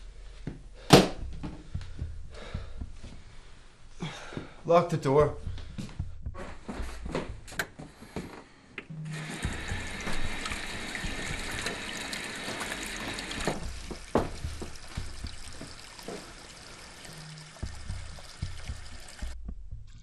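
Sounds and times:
tap running into sink: 9.2 - 19.4.

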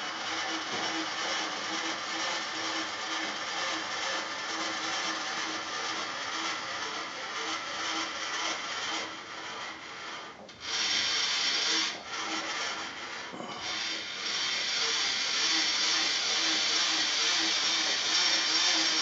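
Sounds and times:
milling machine table hissing: 10.6 - 12.0, 13.4 - 19.0.

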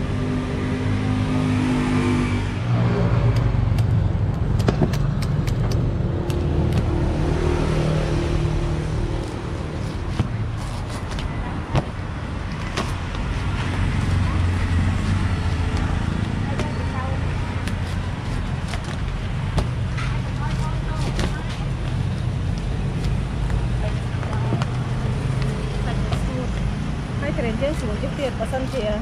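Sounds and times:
engine revving: 0.0 - 10.3
passing road traffic: 0.0 - 29.0.

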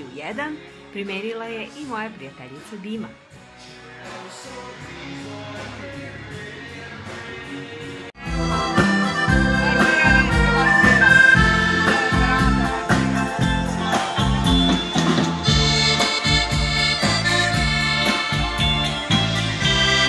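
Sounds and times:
accordion melody: 8.2 - 20.0
dance band playing: 8.2 - 20.0.

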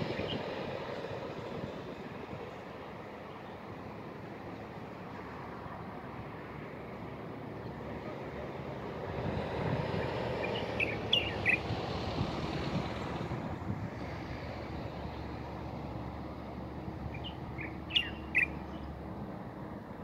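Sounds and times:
distant road traffic: 0.0 - 20.0
wind: 0.0 - 20.0
bird chirping: 10.4 - 11.7, 17.1 - 19.0.

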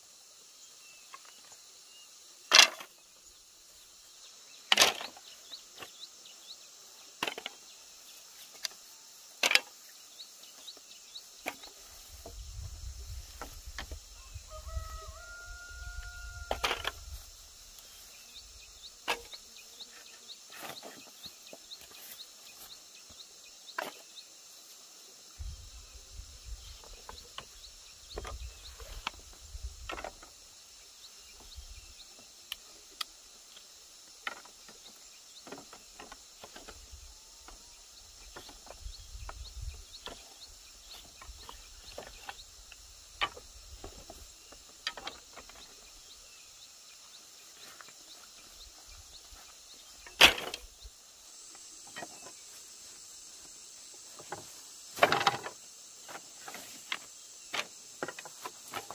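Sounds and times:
steady high hiss: 0.0 - 58.9.

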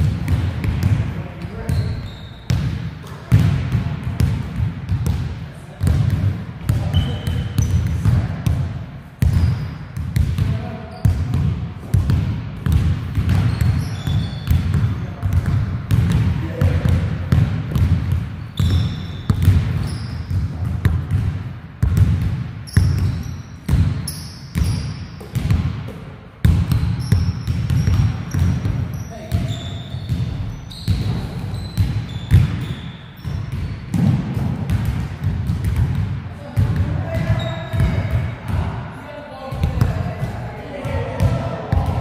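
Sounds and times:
basketball bouncing on court: 0.0 - 38.8, 39.5 - 42.0
shoe squeaks: 1.5 - 2.5, 6.8 - 7.9, 9.2 - 10.0, 13.4 - 15.2, 18.4 - 20.3, 22.7 - 25.4, 26.9 - 34.0, 37.2 - 38.1.

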